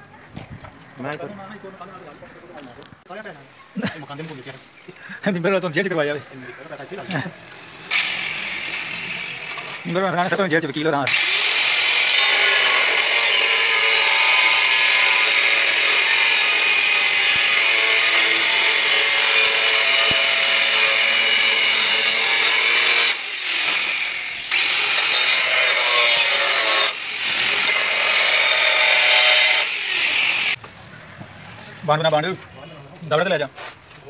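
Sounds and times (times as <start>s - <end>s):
angle grinder cutting tile: 7.9s - 10.4s, 11.1s - 30.6s.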